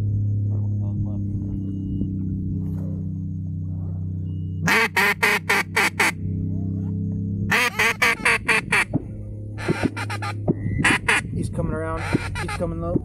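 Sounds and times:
steady low hum: 0.0 - 13.0
duck call quacks: 4.6 - 6.2, 7.5 - 8.9, 9.6 - 11.3, 12.0 - 12.8.

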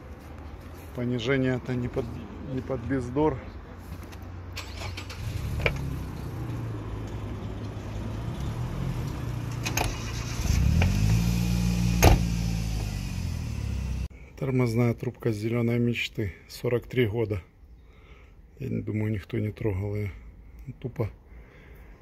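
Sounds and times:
car engine running: 10.4 - 14.1.

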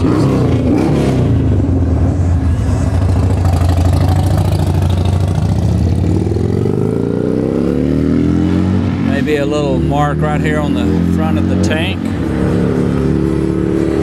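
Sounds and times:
motorcycle engine idling: 2.8 - 6.3.

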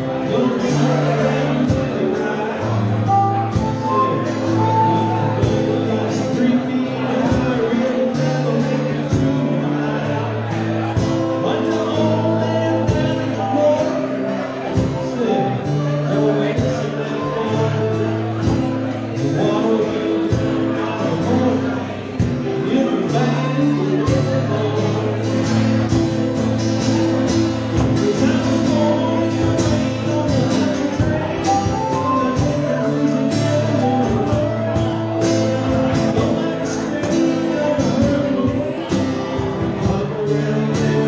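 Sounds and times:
harmonica: 0.0 - 7.1
acoustic guitar: 0.0 - 41.0
cajon beat: 0.0 - 41.0.

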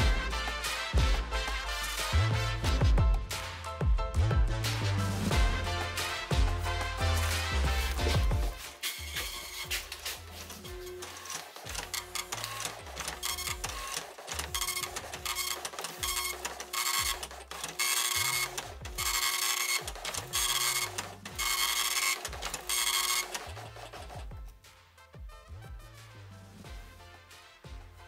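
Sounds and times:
dot-matrix printer printing: 7.1 - 24.3.

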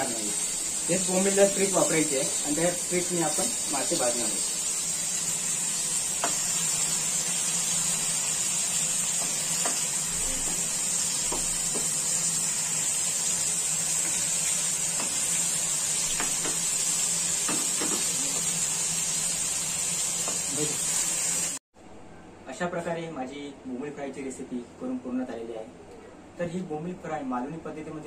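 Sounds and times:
fish sizzling in oil: 0.0 - 21.6.

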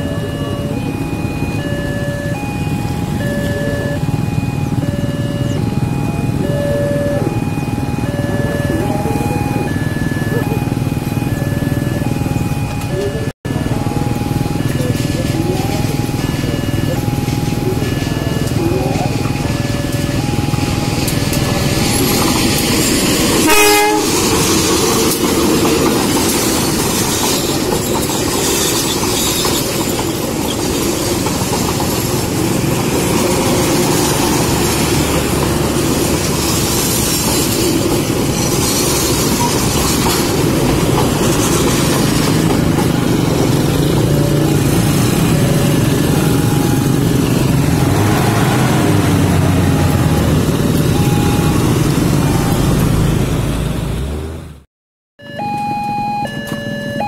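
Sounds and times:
train wheels rumbling: 0.0 - 54.5
train horn blast: 23.3 - 24.4
clatter over rail joints: 24.1 - 46.3.

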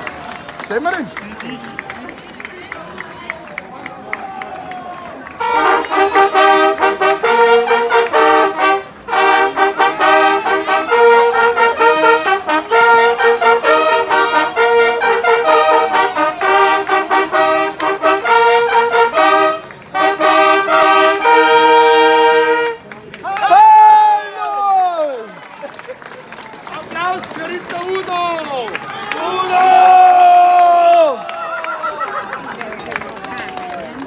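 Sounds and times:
fanfare trumpets playing: 5.2 - 23.7.

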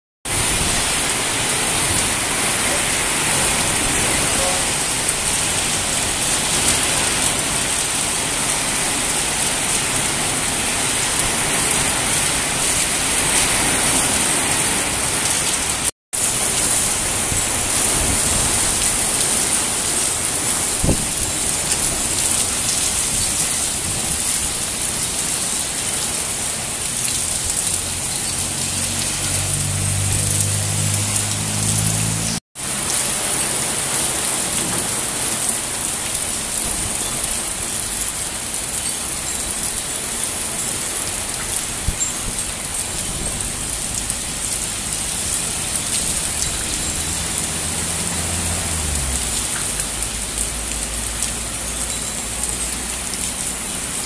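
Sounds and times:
heavy rain on street: 0.2 - 54.0.

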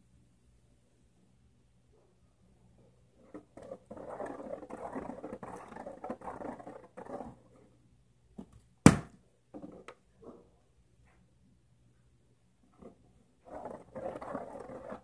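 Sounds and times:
plastic bottle smacking tile floor: 8.4 - 9.2.

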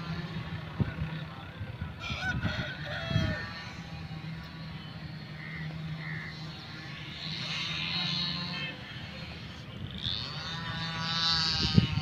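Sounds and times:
steady low hum: 0.0 - 12.0
honking animal calls: 2.0 - 9.4.

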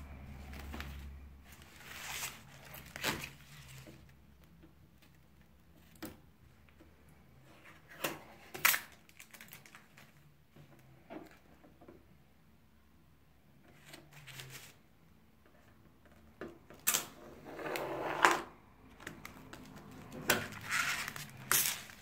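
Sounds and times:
plastic packaging crinkling: 8.6 - 10.3, 18.9 - 22.0.

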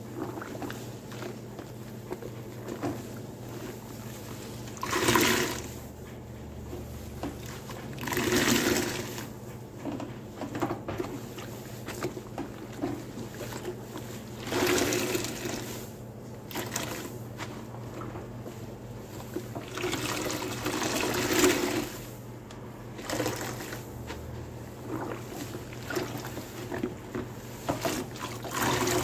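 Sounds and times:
water gushing from squeezed sponge: 0.0 - 6.0, 6.6 - 9.4, 10.9 - 22.2, 22.9 - 29.0
wet sponge squishes: 0.0 - 29.0.

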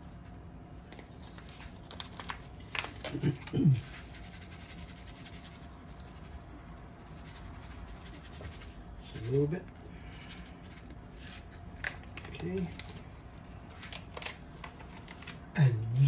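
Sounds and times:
paper packet crinkling: 0.8 - 6.5, 10.2 - 16.0
person mumbling: 15.6 - 16.0.

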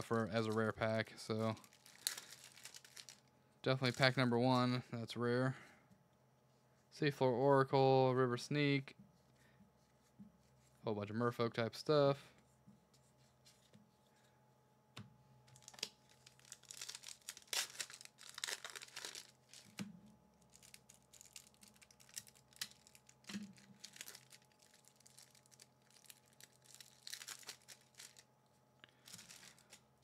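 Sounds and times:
foil wrapper tearing and crinkling: 1.4 - 3.2, 15.6 - 19.8, 20.4 - 28.3, 28.9 - 29.9.

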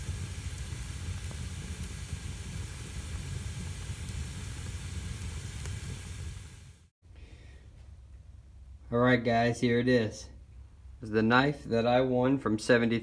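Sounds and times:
fire crackling: 0.0 - 6.9
wood fire hissing and rumbling: 0.0 - 6.9.

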